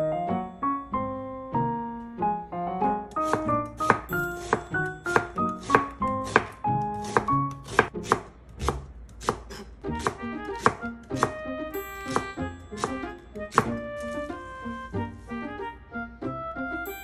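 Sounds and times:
light background music: 0.0 - 17.0
blade knocking on wooden board: 3.1 - 11.4, 12.1 - 13.8
knife slicing on cutting board: 3.2 - 11.4, 12.1 - 14.4.

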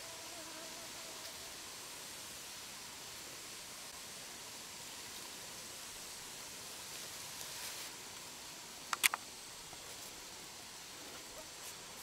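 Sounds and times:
faint steady hiss: 0.0 - 12.0
sharp clicks: 8.9 - 9.2.

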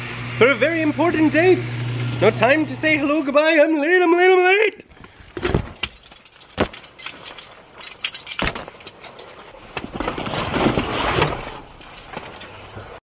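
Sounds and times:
clicks and knocks of gear: 4.8 - 13.0.

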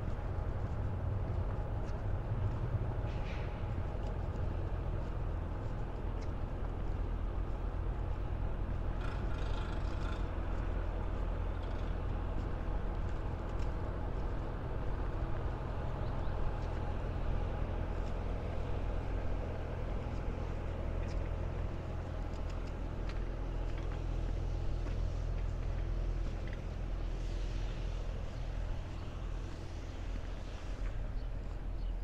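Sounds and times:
low engine drone: 0.0 - 32.0
outdoor city ambience: 0.0 - 32.0.

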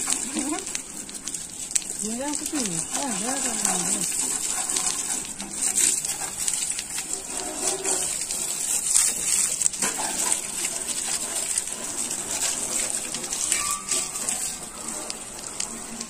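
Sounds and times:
water splashing on ground: 0.0 - 16.0
water spraying on metal: 0.0 - 16.0.

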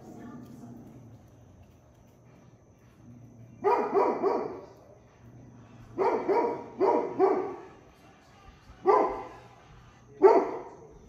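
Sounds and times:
dogs barking: 3.4 - 7.9, 8.8 - 9.5, 10.2 - 10.9.

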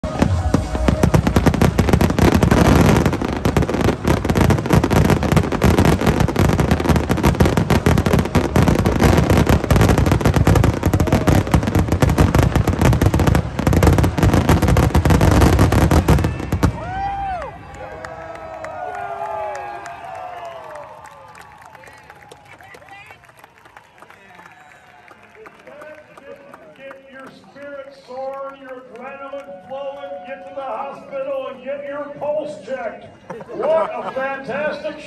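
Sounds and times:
fireworks bursting: 0.0 - 17.3.

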